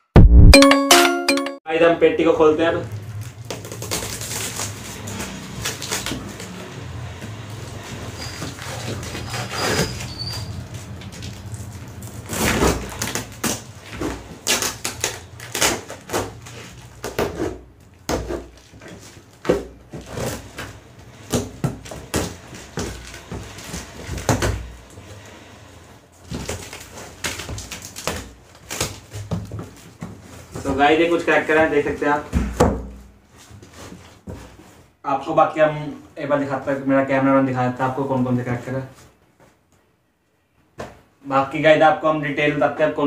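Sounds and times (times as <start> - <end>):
packing tape ripping: 3.0 - 6.6, 8.2 - 20.7, 26.2 - 29.4
scraping and knocking on cardboard: 12.3 - 24.7, 32.3 - 34.9.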